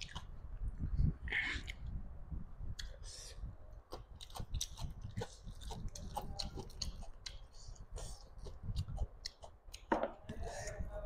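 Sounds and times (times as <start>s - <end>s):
wet chewing and lip smacks: 0.0s - 0.4s, 2.7s - 3.0s, 3.8s - 9.9s
sticky mouth clicks: 2.7s - 3.0s, 3.9s - 9.9s.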